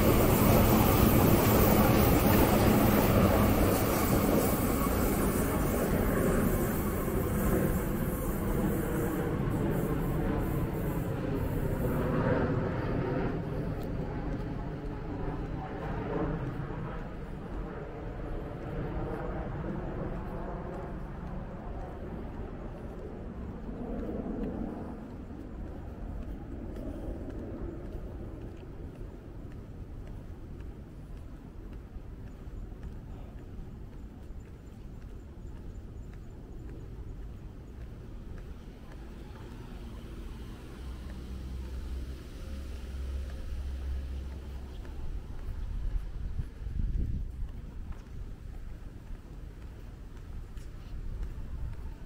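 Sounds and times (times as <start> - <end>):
passing vehicle rumble and hiss: 0.0 - 22.2, 38.1 - 47.1.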